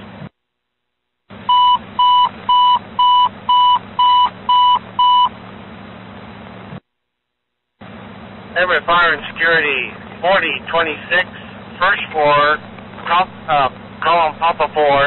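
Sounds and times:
short radio beeps: 1.5 - 5.3
radio channel hiss: 8.6 - 15.0.

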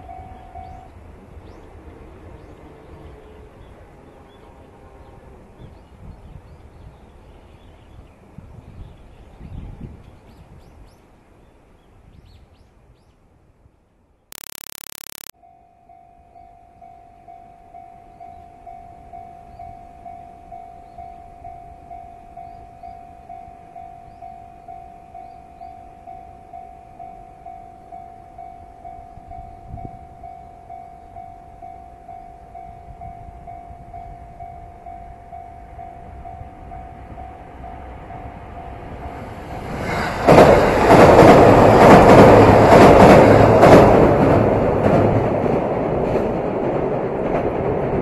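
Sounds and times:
train rumble: 22.8 - 48.0.

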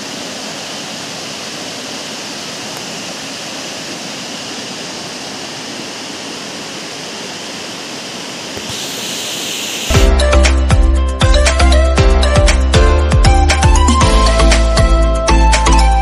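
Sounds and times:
waterfall rushing over rock: 0.0 - 10.0.

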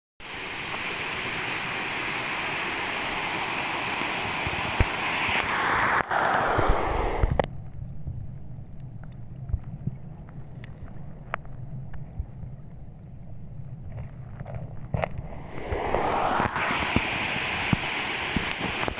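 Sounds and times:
waterfall and stream rushing: 0.2 - 7.4, 15.5 - 18.9.

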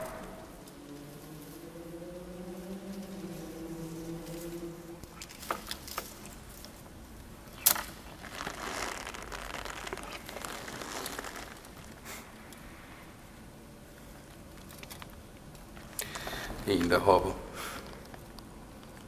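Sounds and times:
rustling and crinkling: 2.8 - 17.0.

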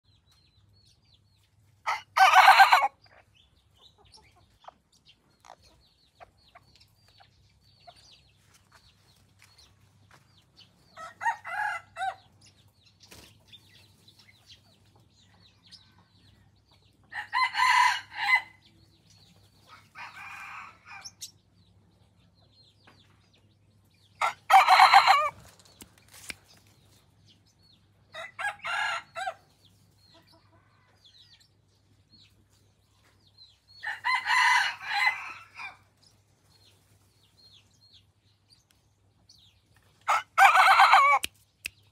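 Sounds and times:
roosters crowing: 1.8 - 3.0, 11.0 - 12.3, 17.1 - 18.6, 19.7 - 21.2, 24.2 - 25.6, 28.1 - 29.5, 33.8 - 35.9, 40.0 - 41.3.

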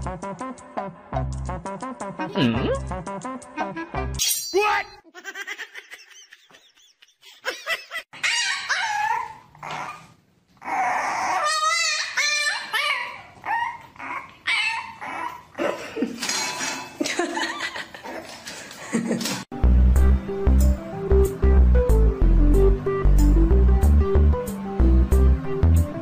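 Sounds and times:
puppy yapping and whimpering: 8.2 - 15.6
dog whining: 8.2 - 15.7.

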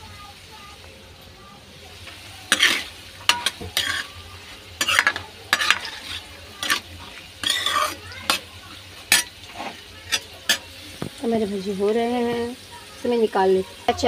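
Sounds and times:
metal spoon scraping a pan: 2.1 - 11.2.

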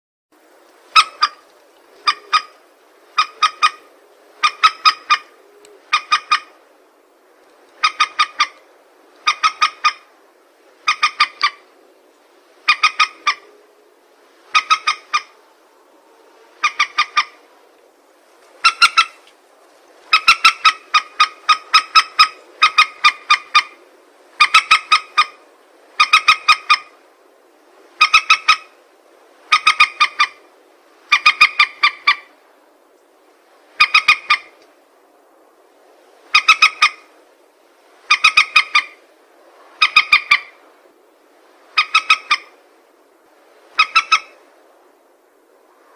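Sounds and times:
recorded rail bird call: 0.8 - 45.9.

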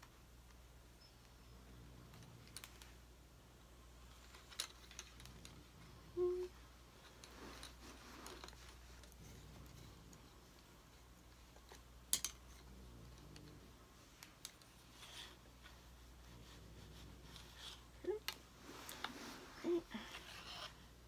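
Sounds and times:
clicks and knocks of doll parts: 4.1 - 5.6, 11.4 - 13.6
soft rubbing: 5.6 - 11.7, 12.6 - 21.0.

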